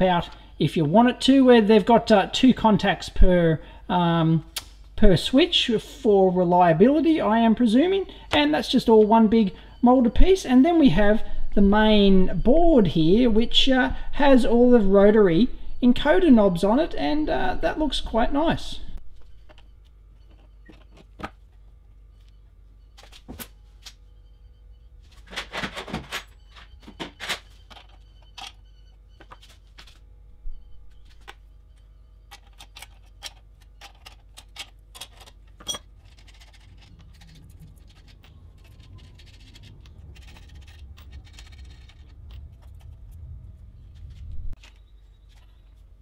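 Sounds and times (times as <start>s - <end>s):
metal and plastic parts clicking: 32.3s - 43.0s.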